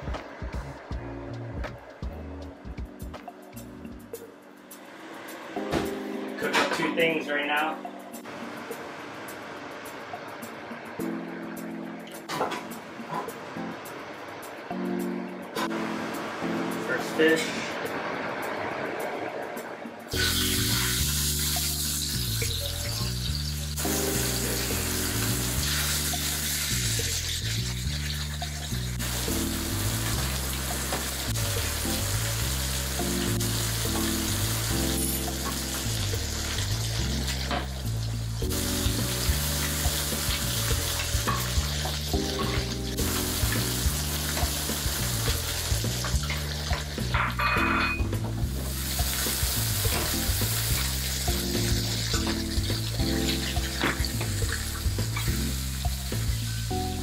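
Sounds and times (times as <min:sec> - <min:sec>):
background music: 0:00.0 - 0:57.0
fish sizzling in oil: 0:20.1 - 0:57.0
garlic sizzling in a pan: 0:20.1 - 0:57.0.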